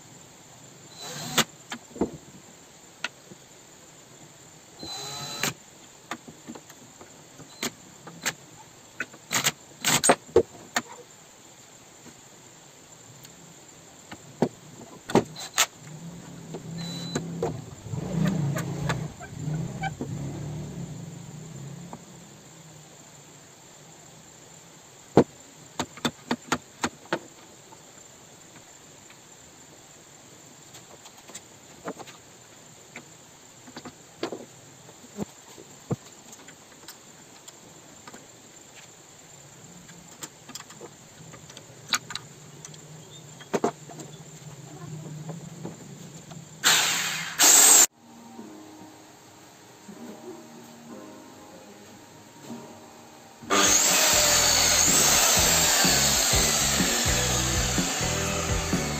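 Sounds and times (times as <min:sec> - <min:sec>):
cordless drill whirring: 0:01.0 - 0:01.5, 0:04.8 - 0:05.6, 0:46.6 - 0:47.9, 0:53.5 - 0:58.9.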